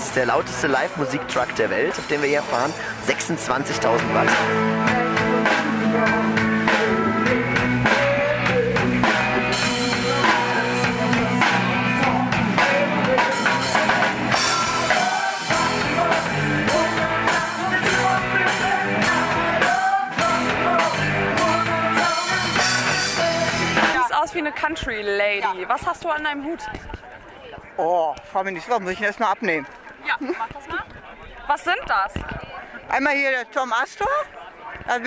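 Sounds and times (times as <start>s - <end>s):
electric guitars: 0.0s - 24.2s
drum kit steady beat: 0.0s - 26.2s
person singing: 4.3s - 24.0s.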